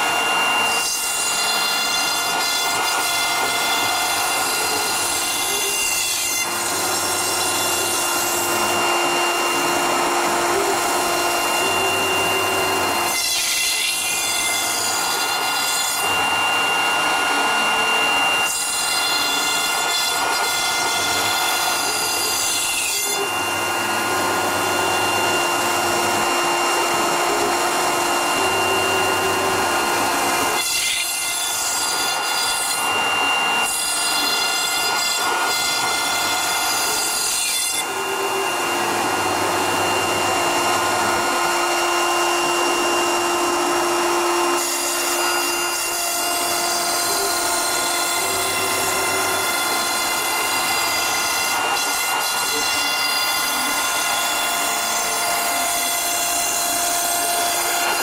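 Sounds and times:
high spindle whine: 0.0 - 58.0.

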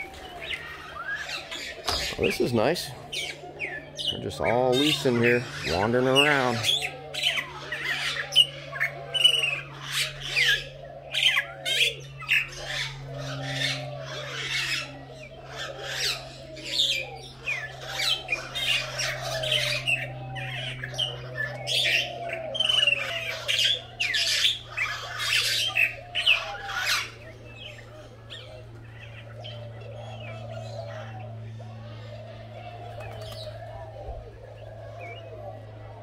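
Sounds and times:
birds squawking and shrieking: 0.0 - 36.0
lower repeated bird calls: 0.0 - 36.0.

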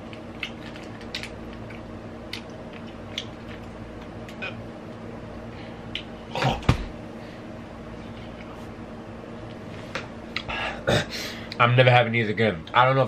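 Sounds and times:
man retching: 6.3 - 6.8, 10.8 - 11.1.

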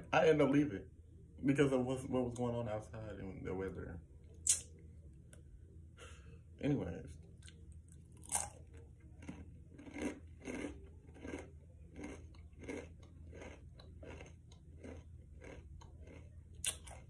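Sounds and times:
person chewing crunchy snack: 7.4 - 17.0.

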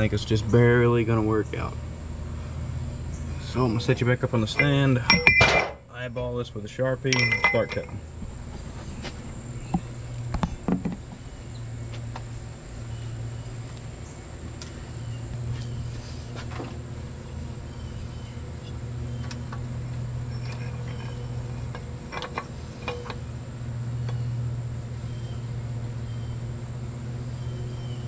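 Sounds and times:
low hum: 0.0 - 28.0
metal parts clicking and knocking: 7.1 - 8.0, 20.3 - 23.2.

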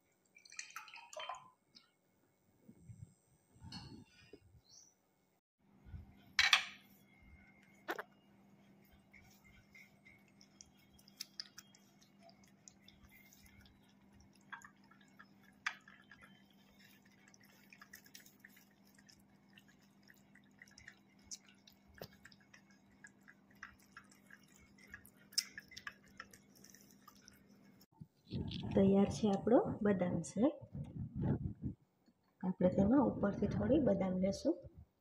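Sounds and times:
cats lapping liquid: 8.0 - 28.7
low hum: 28.3 - 31.8.

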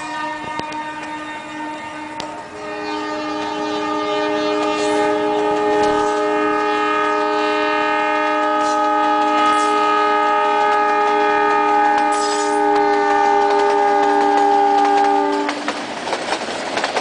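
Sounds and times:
locomotive horn blast: 0.0 - 15.8.

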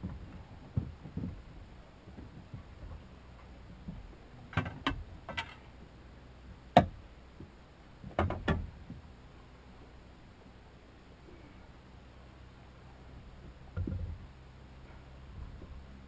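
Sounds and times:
knocks and clatters in boat: 0.0 - 5.9, 6.5 - 9.2, 13.2 - 14.4, 15.3 - 16.0.

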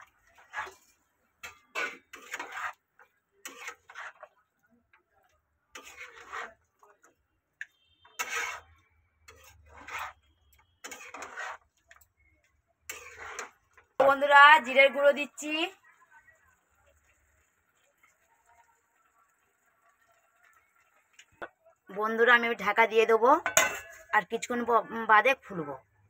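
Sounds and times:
metal spatula scraping pan: 0.0 - 4.4, 5.7 - 12.1, 12.8 - 14.7, 22.6 - 24.2.

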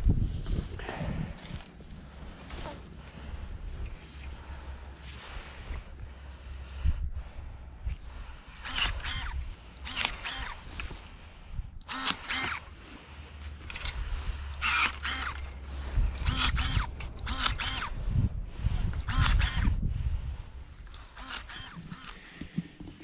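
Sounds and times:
electric pruning shears whirring: 8.0 - 22.8.

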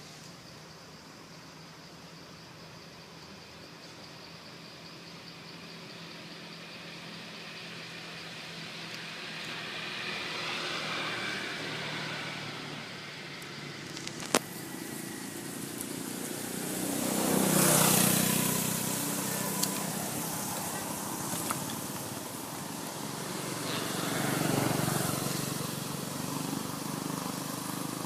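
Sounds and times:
motor vehicle passing: 6.8 - 28.0.

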